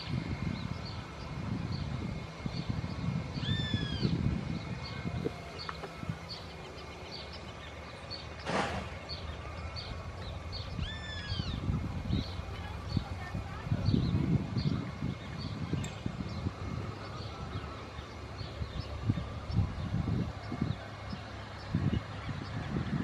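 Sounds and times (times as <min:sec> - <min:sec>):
bird chirping: 0:00.0 - 0:22.9
descending bird calls: 0:00.0 - 0:22.9
jet engines whining at idle: 0:00.0 - 0:23.0
wind buffeting microphone: 0:00.0 - 0:23.0
brief hiss: 0:08.4 - 0:09.0.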